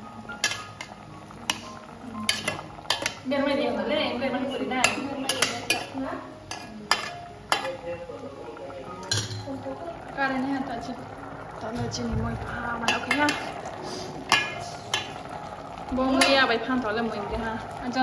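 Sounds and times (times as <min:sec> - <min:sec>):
metal ladle scraping a pot: 0:00.4 - 0:03.3, 0:04.4 - 0:07.9, 0:12.8 - 0:16.5.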